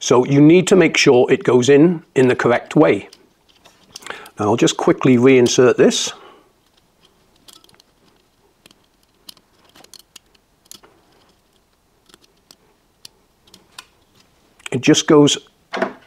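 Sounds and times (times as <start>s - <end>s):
small clicks and scrapes of carbon brush: 6.6s - 14.8s.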